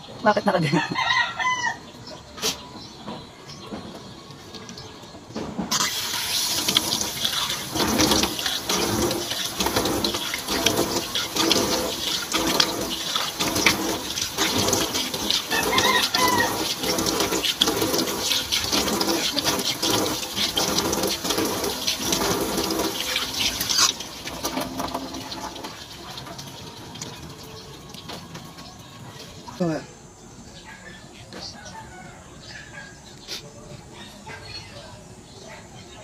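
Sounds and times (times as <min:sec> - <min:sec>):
tap water running into sink: 0:05.7 - 0:29.5
splashing face rinsing: 0:05.7 - 0:29.6.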